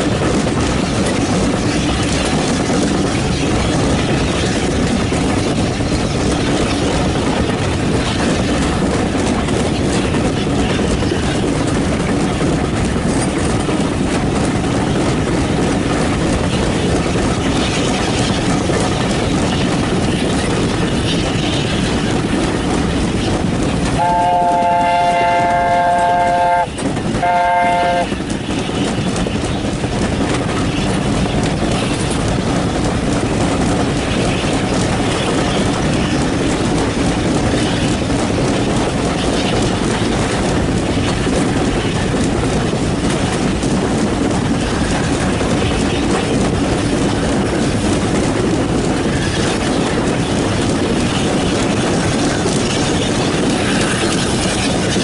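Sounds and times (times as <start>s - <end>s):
steam train running: 0.0s - 55.0s
steam train whistle: 24.0s - 28.1s.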